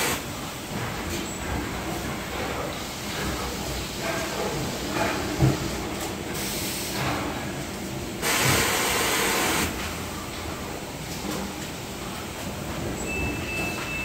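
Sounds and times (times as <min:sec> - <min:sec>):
factory machinery noise: 0:00.0 - 0:14.0
loud hiss: 0:08.2 - 0:09.7.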